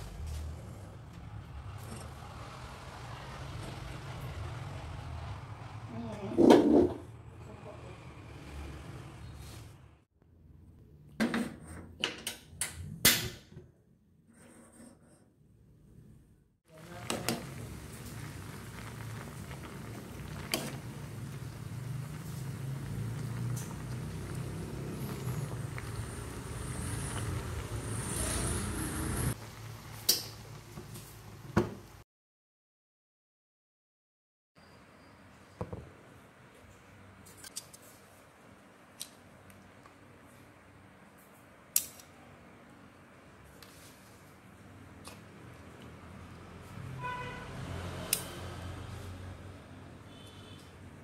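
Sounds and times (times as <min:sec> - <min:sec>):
water boiling in a pot: 0:16.7 - 0:32.0.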